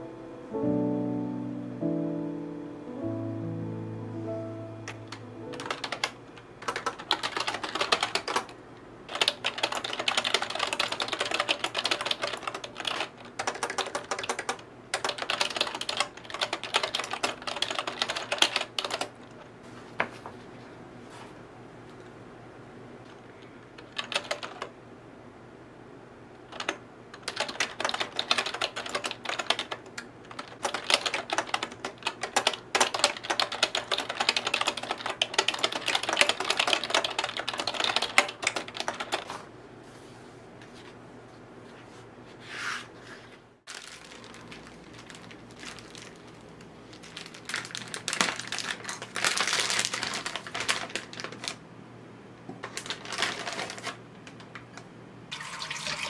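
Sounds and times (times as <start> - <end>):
clacking keyboard typing: 4.9 - 19.2, 23.8 - 24.7, 26.5 - 39.3.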